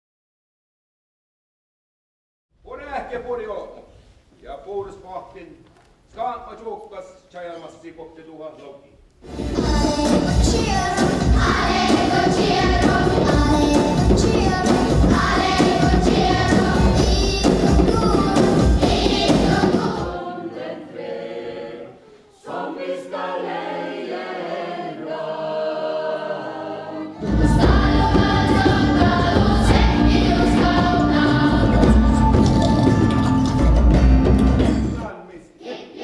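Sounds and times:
instrumental accompaniment: 9.2s - 20.3s, 27.1s - 35.1s
children's choir singing: 9.2s - 33.3s, 35.5s - 36.0s
adult group singing unaccompanied: 9.3s - 33.0s, 35.4s - 36.0s.

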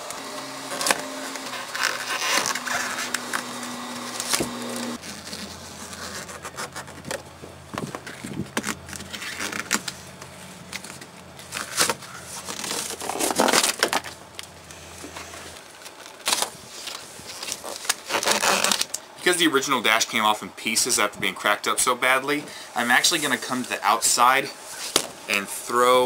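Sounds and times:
heat gun humming: 0.0s - 5.0s
vinyl peeling crackling: 0.0s - 19.4s.

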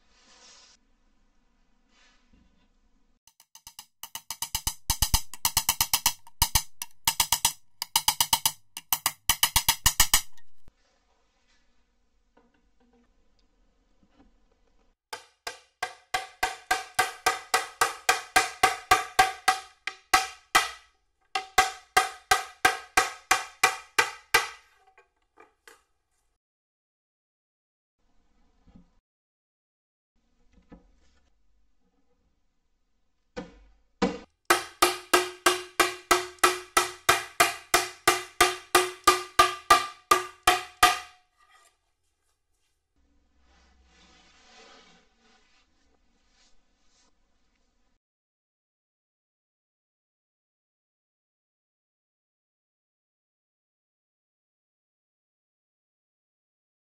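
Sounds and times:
hammer tapping wooden block: 3.3s - 10.7s, 15.2s - 24.6s, 34.5s - 41.2s.

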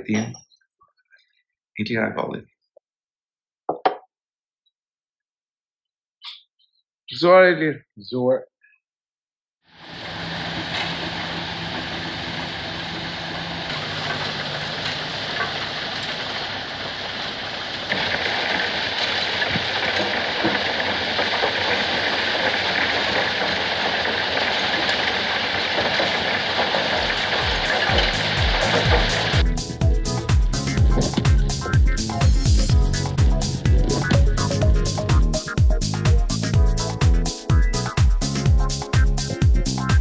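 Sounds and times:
clattering stone crushing machinery: 9.9s - 35.3s
music with a beat: 27.0s - 40.0s.

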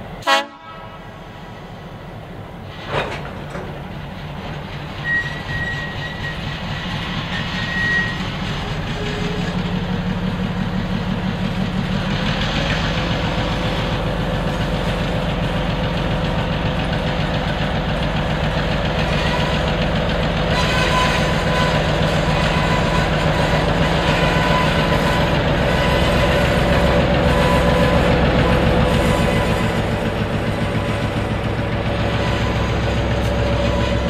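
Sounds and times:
diesel locomotive engine rumble: 0.0s - 34.0s
thin high squeal: 5.0s - 6.5s.

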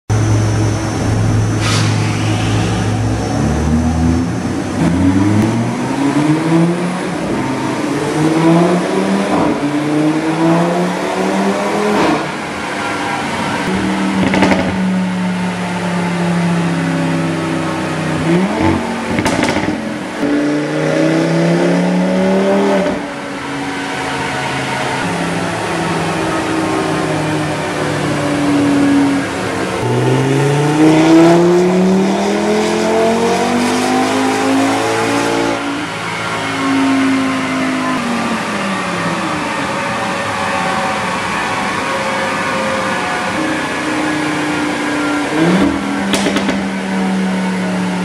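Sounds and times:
engine revving on dyno: 0.1s - 15.6s, 17.2s - 48.0s.

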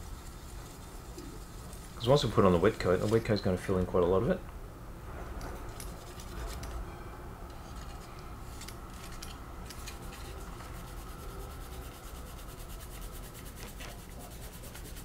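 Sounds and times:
hand sanding plastic: 8.9s - 15.0s.

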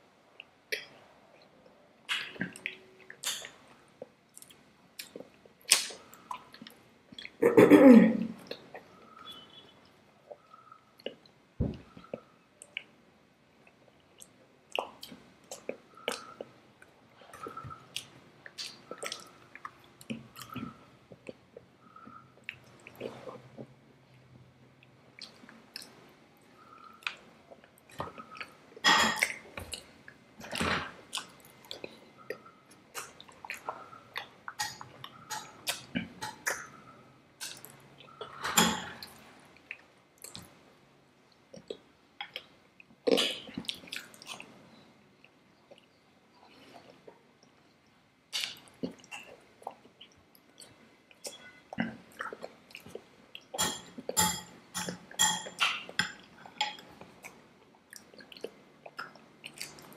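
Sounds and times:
wet chewing with lip smacks: 13.6s - 26.0s, 29.2s - 38.3s, 41.5s - 54.1s, 56.4s - 59.9s.

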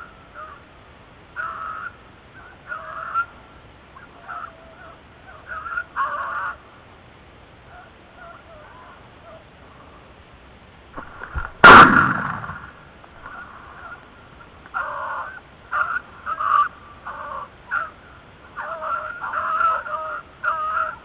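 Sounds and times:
shotgun shot: 11.4s - 12.8s
beagles baying: 18.6s - 21.0s.

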